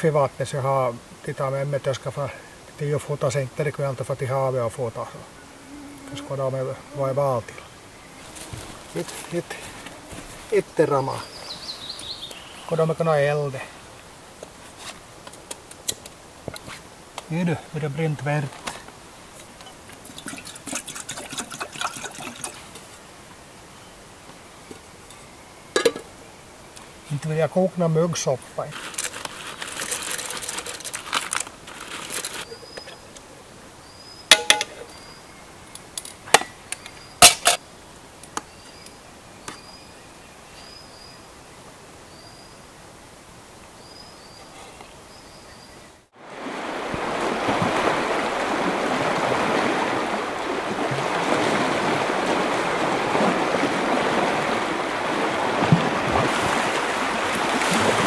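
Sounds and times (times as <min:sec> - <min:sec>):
waves on sea shore: 0:00.0 - 0:15.2, 0:46.1 - 0:58.0
bird chirping: 0:05.3 - 0:13.0
metal cookware clinking and scraping: 0:25.8 - 0:26.1.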